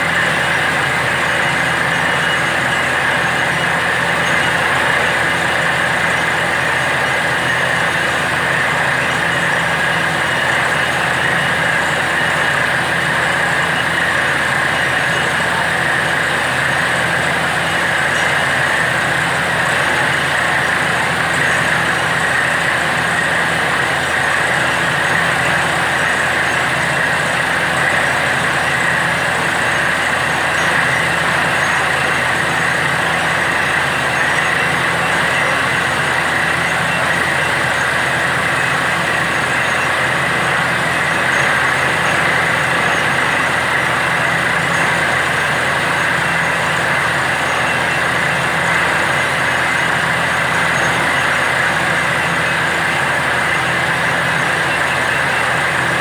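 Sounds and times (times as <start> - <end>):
engine and compressor drone: 0.0 - 56.0.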